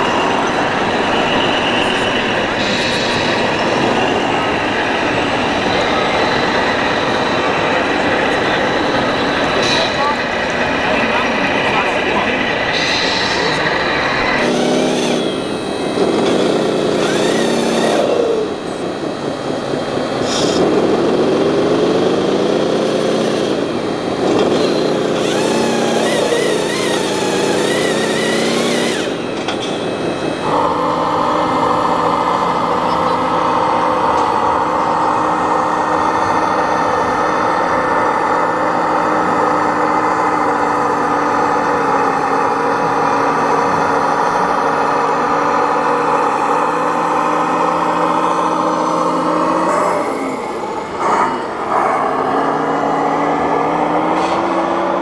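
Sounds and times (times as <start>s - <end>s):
model vehicle motor running: 12.8s - 35.7s.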